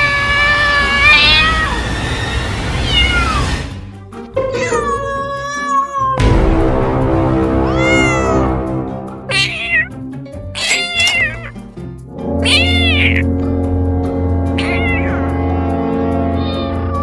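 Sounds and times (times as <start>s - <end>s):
cat meowing: 0.0s - 1.9s, 2.7s - 3.6s, 4.4s - 6.2s, 7.6s - 8.6s, 9.3s - 10.0s, 10.6s - 11.6s, 12.4s - 13.3s, 14.6s - 15.4s, 16.4s - 17.0s
background music with sustained notes: 3.4s - 17.0s.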